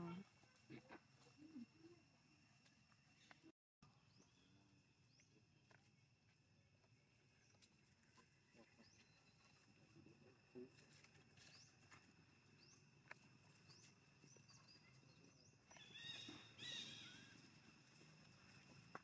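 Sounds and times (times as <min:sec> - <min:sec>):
baby monkey chirping and crying: 0:15.8 - 0:17.3.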